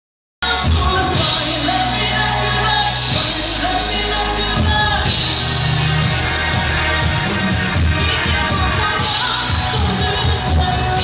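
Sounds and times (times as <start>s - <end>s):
woman singing into microphone: 0.4s - 5.9s, 7.7s - 11.0s
live rock band: 0.4s - 11.0s.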